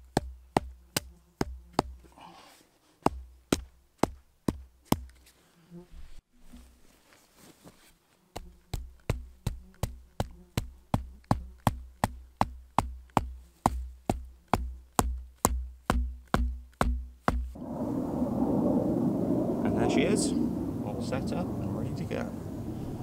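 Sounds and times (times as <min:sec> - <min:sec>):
steady outdoor rumble: 0:11.7 - 0:23.0.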